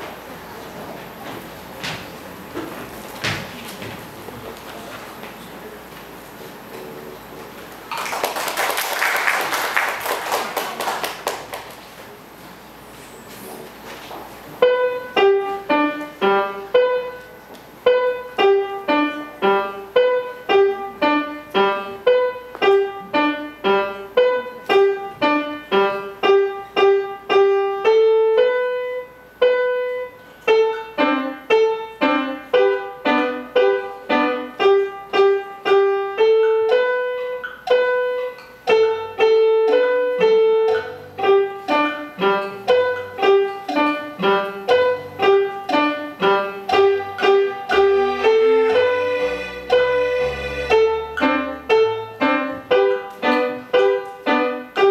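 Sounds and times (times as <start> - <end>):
grand piano melody: 0.0 - 5.8, 7.2 - 54.9
low piano bass notes: 14.6 - 54.9.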